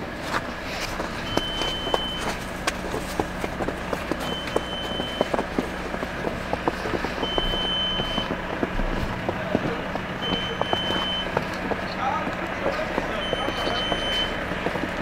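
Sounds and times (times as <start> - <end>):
footsteps crunching in snow: 0.0 - 15.0
steady low hum: 0.0 - 15.0
high electronic beep: 4.2 - 5.3, 10.2 - 11.3.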